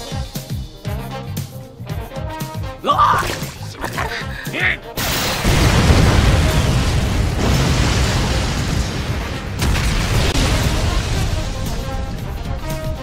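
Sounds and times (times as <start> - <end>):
explosion blasts: 5.0 - 12.7.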